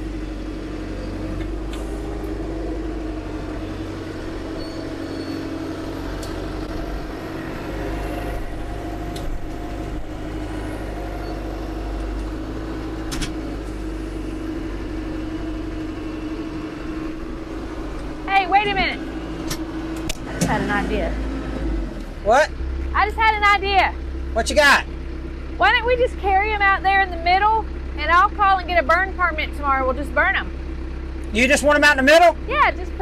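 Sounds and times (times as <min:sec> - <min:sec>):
tractor diesel engine running: 0:00.0 - 0:33.0.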